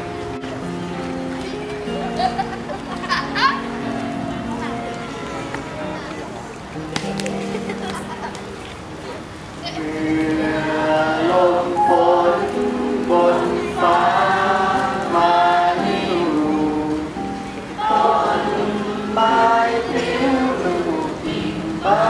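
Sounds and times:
group singing: 9.6s - 22.0s.

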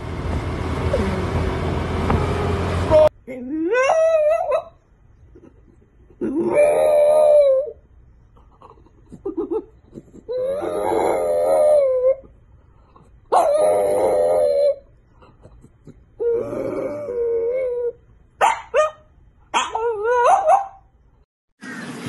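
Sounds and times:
dog howling: 6.4s - 7.8s, 10.3s - 12.2s, 13.3s - 14.9s.

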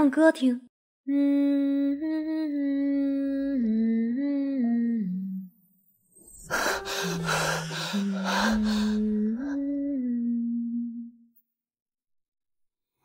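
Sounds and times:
woman humming a gentle tune: 1.1s - 5.6s, 6.4s - 11.4s.

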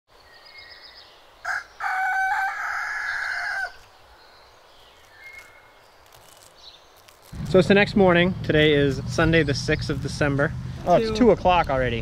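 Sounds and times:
rooster crowing: 1.4s - 3.8s.

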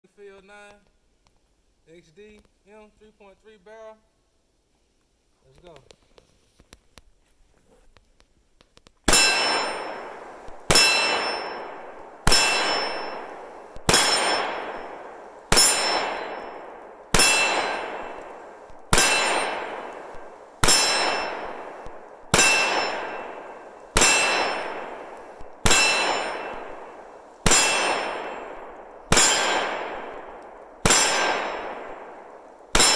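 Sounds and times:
pistol shots: 9.1s - 32.9s
steel target ringing: 9.1s - 32.9s.

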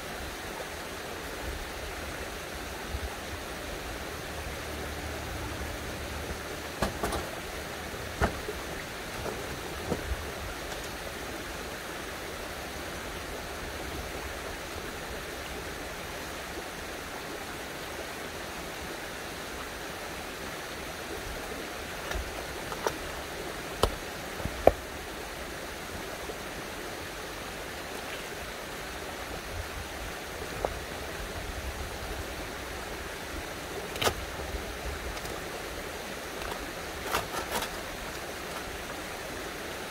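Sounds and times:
running spring water: 0.0s - 39.9s.

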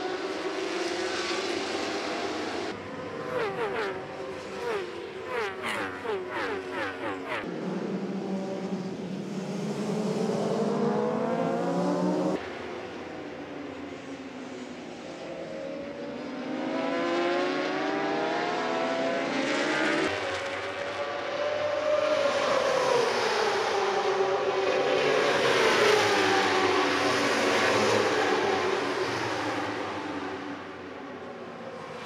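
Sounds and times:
motorcycle engines at high revs: 0.0s - 12.4s.

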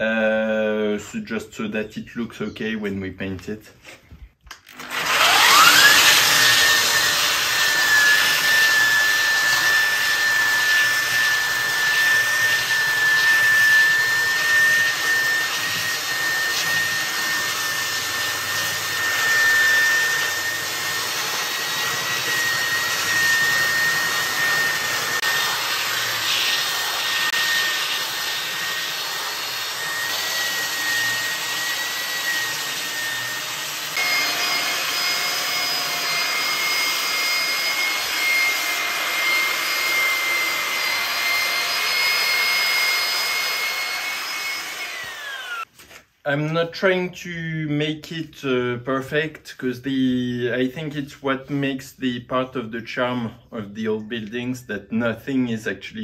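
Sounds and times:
belt sander motor whine: 4.7s - 45.7s
sanding belt hissing on wood: 5.1s - 45.7s.

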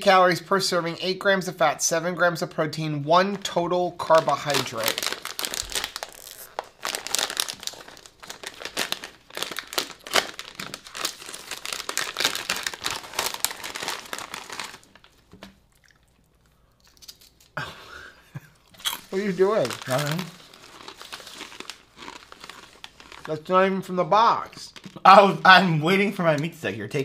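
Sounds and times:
snack bag crinkling and tearing: 3.4s - 17.6s, 18.7s - 23.5s, 24.5s - 25.1s.

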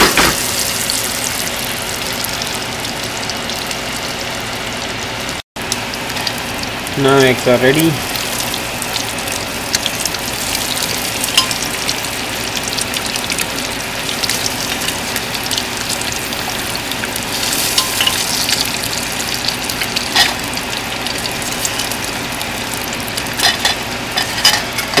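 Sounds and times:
eggs sizzling in hot oil: 0.0s - 25.0s.

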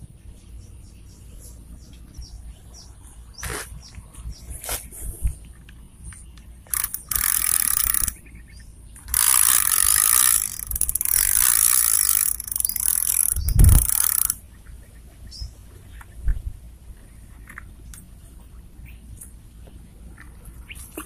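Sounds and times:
fishing reel whirring: 6.7s - 8.2s, 9.1s - 14.4s.

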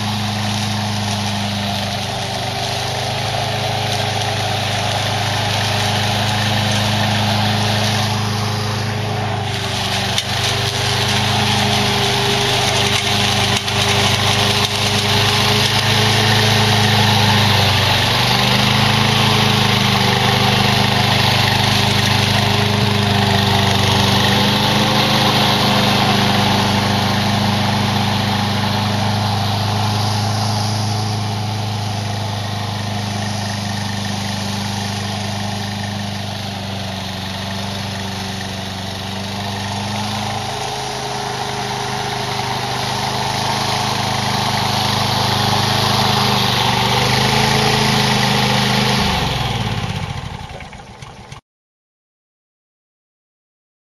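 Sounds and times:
small mower engine running: 0.0s - 51.4s.

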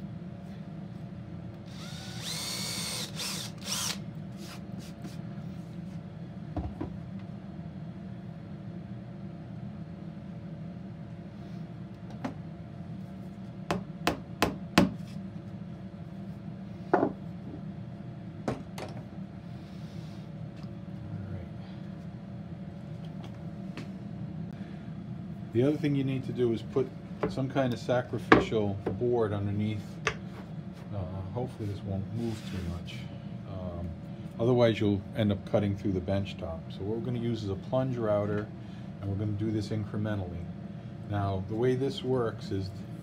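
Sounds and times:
cordless drill whirring: 1.6s - 4.0s.

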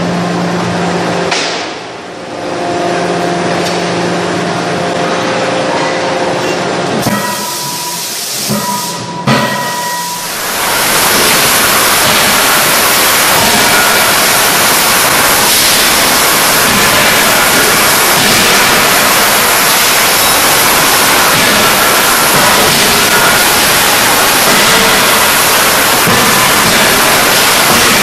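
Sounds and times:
loud steady rushing hiss: 7.0s - 28.0s.

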